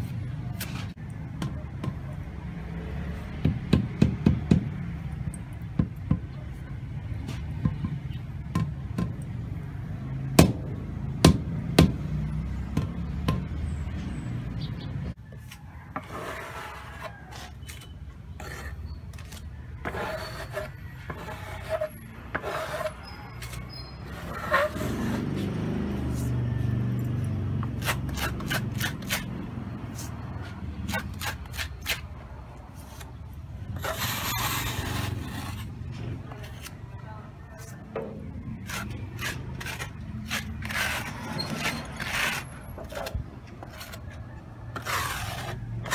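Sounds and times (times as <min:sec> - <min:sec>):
trowel scraping mortar: 0:15.4 - 0:26.4, 0:27.6 - 0:37.0, 0:37.6 - 0:45.9.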